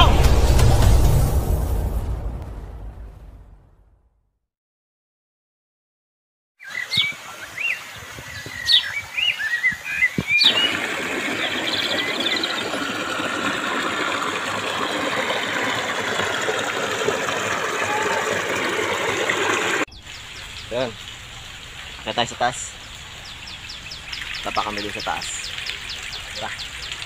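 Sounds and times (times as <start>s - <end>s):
birds chirping: 6.6s - 27.0s
waterfall splashing over rocks: 6.9s - 27.0s.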